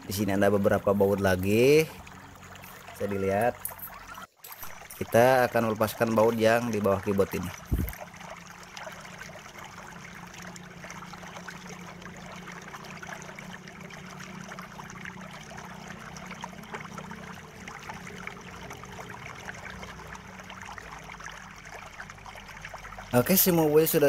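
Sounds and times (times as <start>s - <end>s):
low hum: 0.0s - 23.2s.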